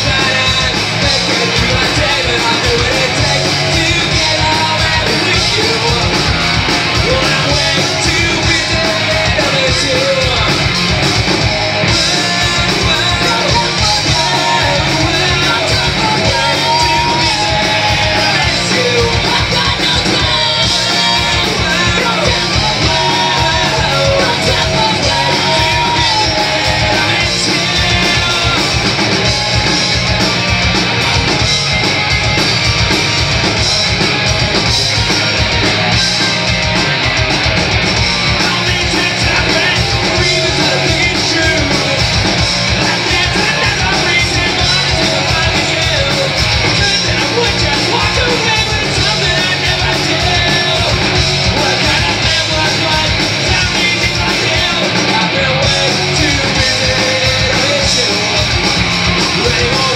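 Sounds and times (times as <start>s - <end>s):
punk rock band playing live: 0.0s - 59.9s
sung and shouted vocals: 11.8s - 29.7s, 38.4s - 58.5s.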